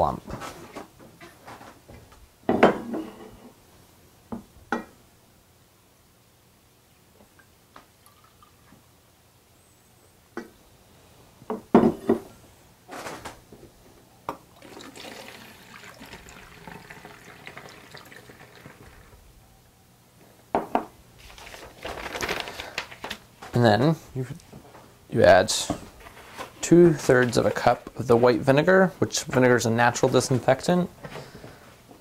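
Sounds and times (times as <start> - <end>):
water pouring through funnel: 14.6 - 19.2.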